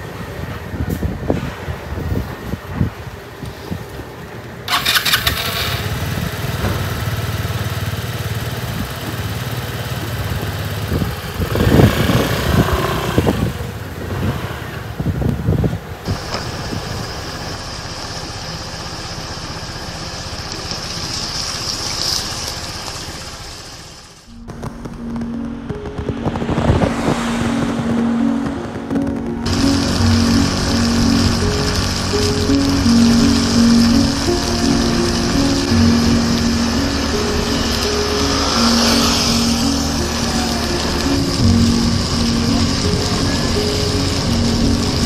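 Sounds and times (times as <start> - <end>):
small motorcycle engine running: 4.7 - 15.3, 29.4 - 45.0.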